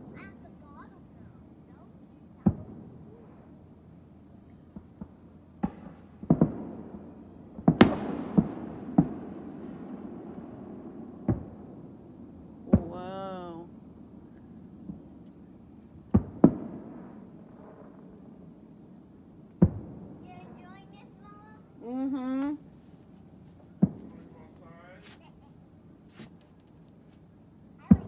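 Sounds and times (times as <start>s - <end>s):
fireworks booming and cracking: 2.4s - 3.5s, 4.7s - 13.7s, 14.7s - 18.3s, 19.6s - 21.6s, 23.7s - 24.6s, 27.8s - 28.0s.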